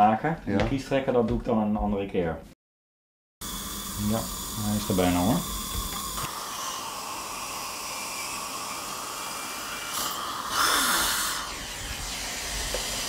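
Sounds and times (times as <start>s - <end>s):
dental suction hissing: 3.4s - 13.0s
slurping burst: 4.1s - 13.0s.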